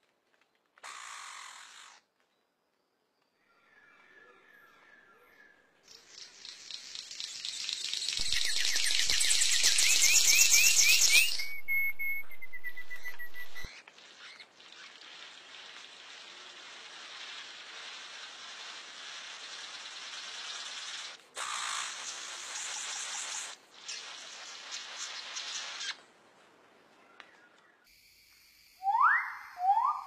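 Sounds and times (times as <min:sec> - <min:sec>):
crackling static-like hiss: 0:05.9 - 0:11.7, 0:12.3 - 0:28.5
bird calling rising notes: 0:08.2 - 0:14.4, 0:28.8 - 0:30.0
steady whistle: 0:09.9 - 0:13.7.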